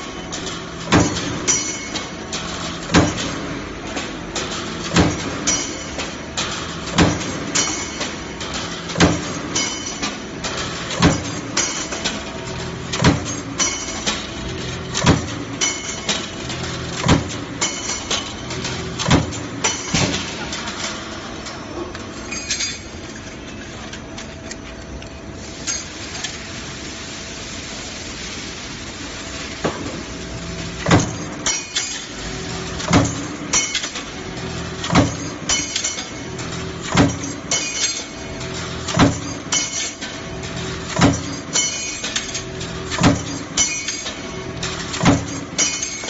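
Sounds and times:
steady machine hum: 0:00.0 - 0:46.0
punch press metallic clank: 0:00.3 - 0:12.2, 0:12.9 - 0:21.0, 0:30.8 - 0:46.0.

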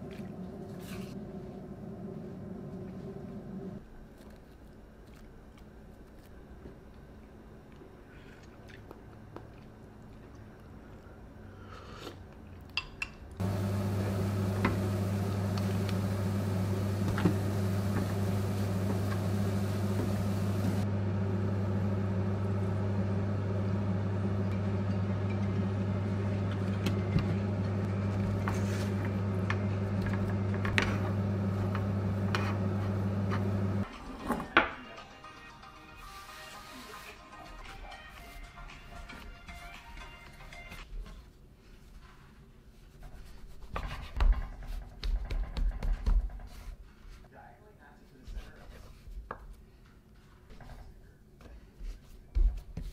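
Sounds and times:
steady low hum: 0:00.0 - 0:04.0, 0:13.4 - 0:33.9.

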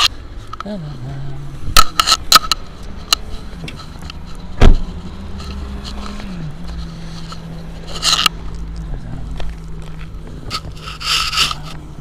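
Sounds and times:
heavy thump: 0:04.5 - 0:05.0.

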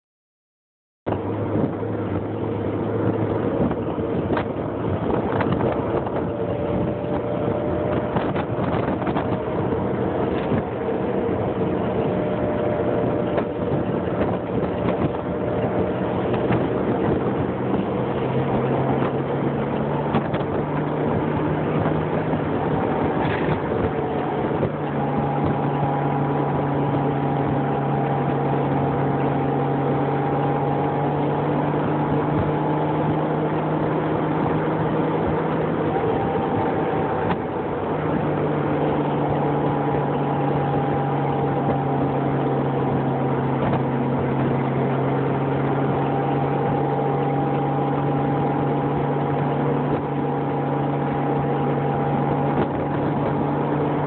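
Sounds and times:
motorcycle engine humming: 0:01.1 - 0:54.0
wind rush: 0:01.1 - 0:54.0.

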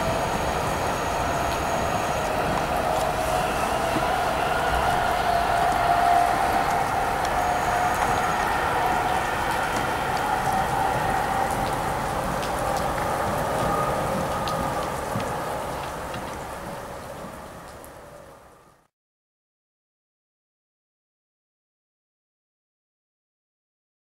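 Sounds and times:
train rolling hiss: 0:00.0 - 0:17.6
electric train whine: 0:00.0 - 0:18.9.

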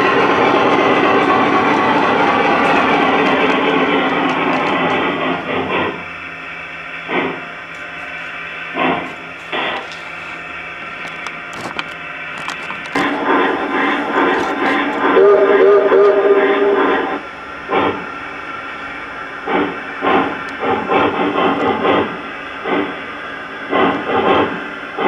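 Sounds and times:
model train cars clattering on track: 0:00.0 - 0:06.0
knocks of train cars: 0:00.0 - 0:06.1, 0:07.1 - 0:07.5, 0:08.7 - 0:09.8, 0:19.4 - 0:23.0, 0:23.7 - 0:25.0.

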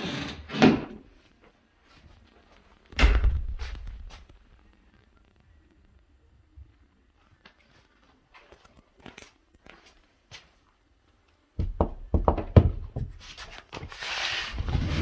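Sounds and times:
wooden knocks and thumps: 0:11.6 - 0:13.2.

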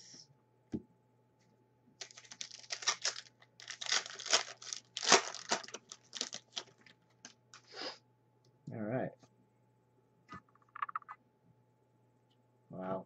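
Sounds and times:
wrapper tearing and crinkling: 0:02.0 - 0:07.0.

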